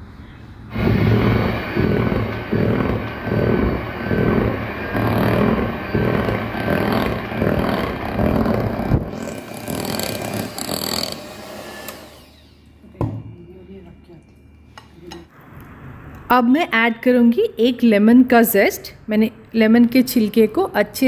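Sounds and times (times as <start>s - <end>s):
electric hand mixer whipping batter: 0.7s - 12.6s.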